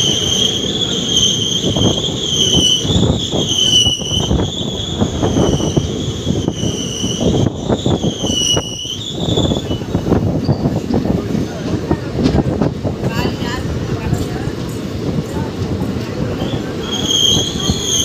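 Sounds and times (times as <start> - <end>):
brake squeal: 0.0 - 10.8, 16.4 - 18.0
train wheels rumbling on rails: 0.0 - 18.0.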